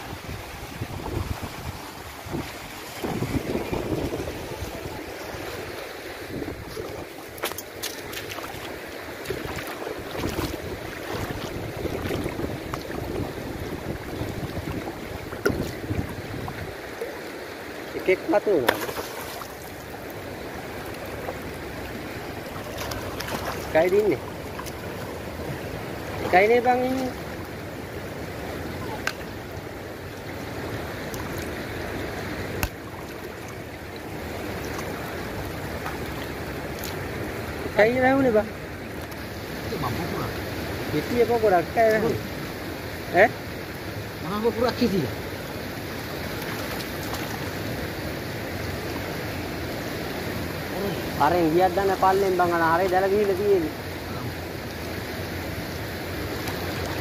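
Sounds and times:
wind on microphone: 0:00.0 - 0:16.8
water sloshing around wading legs: 0:00.4 - 0:37.7, 0:45.7 - 0:51.2, 0:54.6 - 0:57.0
small splashes: 0:01.0 - 0:17.5, 0:18.4 - 0:27.6, 0:30.9 - 0:37.3, 0:46.0 - 0:47.8, 0:56.2 - 0:57.0.

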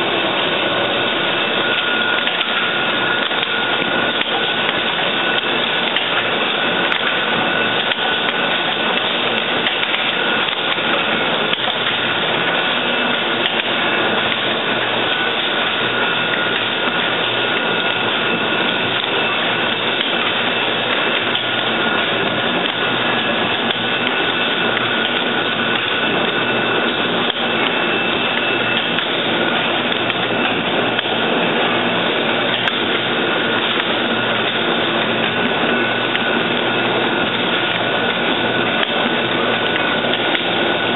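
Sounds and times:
dense mechanical clatter: 0:00.0 - 0:40.9.

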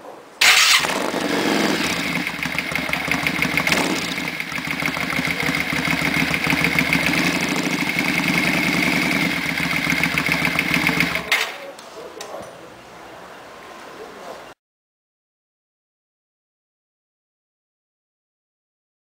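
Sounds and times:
motorcycle engine idling: 0:00.4 - 0:11.6.

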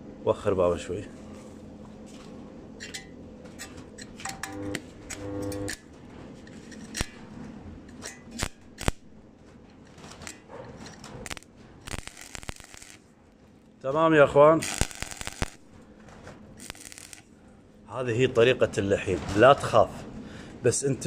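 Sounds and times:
arc welding crackle and pops: 0:03.4 - 0:17.4
short welding buzzes: 0:04.4 - 0:05.8, 0:08.3 - 0:09.1, 0:11.2 - 0:13.1, 0:14.6 - 0:15.7, 0:16.6 - 0:17.3.

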